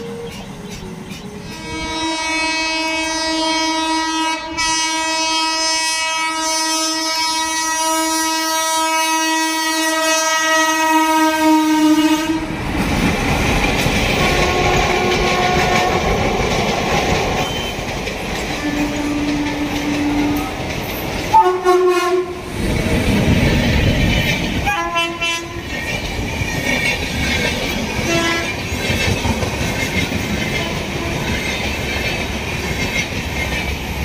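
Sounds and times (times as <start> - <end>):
train rumble and wheel clatter: 0.0 - 34.0
train horn blast: 1.4 - 12.5, 14.2 - 16.1, 18.6 - 20.6, 21.3 - 22.5, 24.6 - 25.7, 28.0 - 28.6, 30.5 - 31.4.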